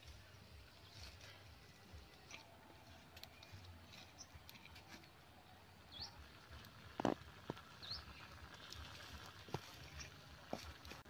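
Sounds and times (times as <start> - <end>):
small bird chirping: 5.8 - 6.3, 7.5 - 9.2.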